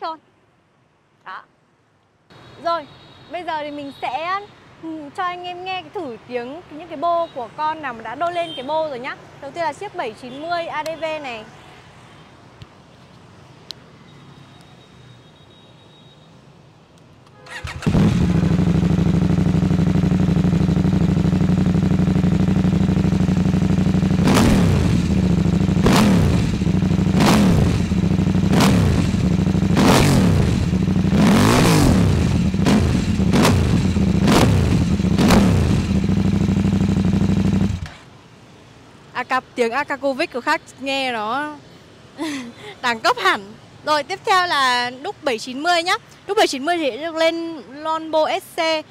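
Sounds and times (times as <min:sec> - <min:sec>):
motorcycle engine idling and revving: 0:17.4 - 0:38.1.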